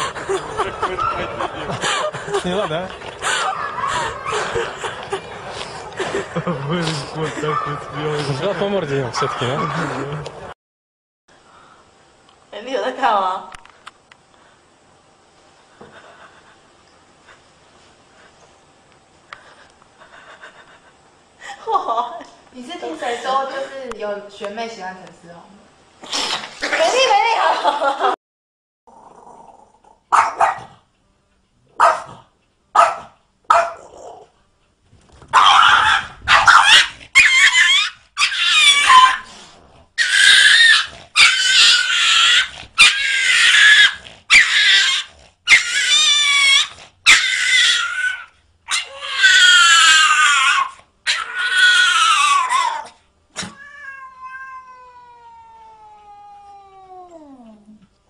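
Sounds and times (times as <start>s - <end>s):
cat yowling: 35.4s - 39.3s, 40.0s - 57.6s.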